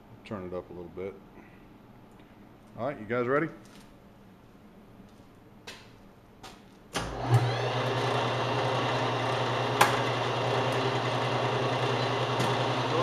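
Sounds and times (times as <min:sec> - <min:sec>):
metal lathe motor humming: 0:07.1 - 0:13.0.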